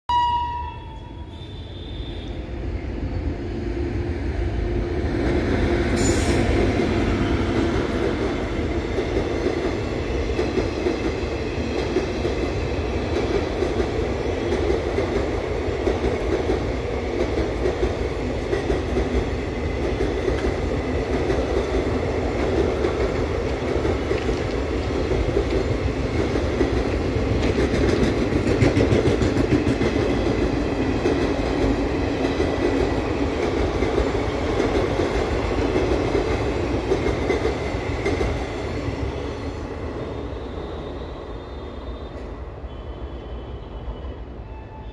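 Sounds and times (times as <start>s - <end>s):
passenger train running past: 0.1s - 44.9s.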